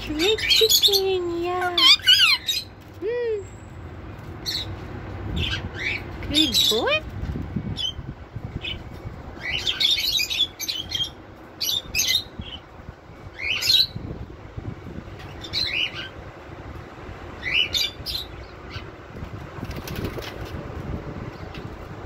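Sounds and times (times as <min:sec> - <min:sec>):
parrots chirping and squawking: 0:00.0 - 0:03.0, 0:04.2 - 0:07.1, 0:08.6 - 0:12.7, 0:13.3 - 0:14.0, 0:15.2 - 0:16.2, 0:17.4 - 0:19.0.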